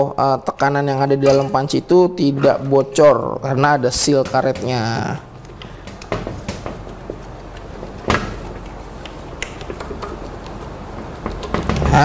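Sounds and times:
rubber gasket clicking and rubbing: 0:04.0 - 0:12.0.

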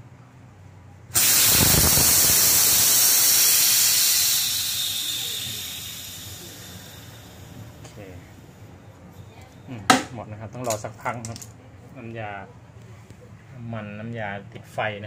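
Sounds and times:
refrigerant gas hissing: 0:01.1 - 0:08.8.

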